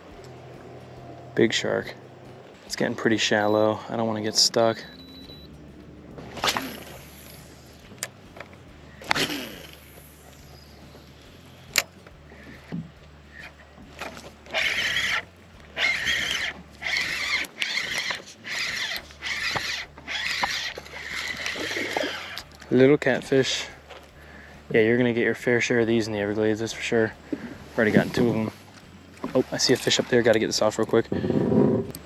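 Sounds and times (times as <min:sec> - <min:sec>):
fishing reel whirring: 0:06.2 - 0:12.7, 0:13.3 - 0:23.9.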